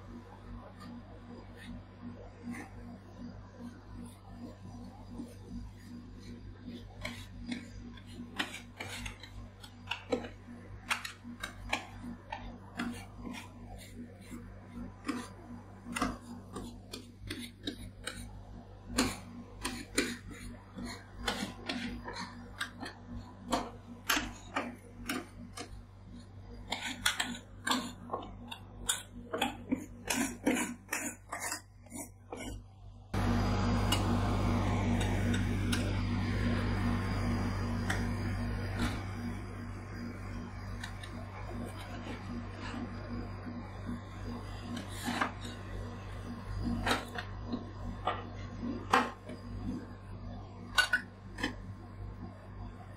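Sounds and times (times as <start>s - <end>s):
steady low machine hum: 0.0s - 52.9s
louder steady sound: 33.1s - 44.6s.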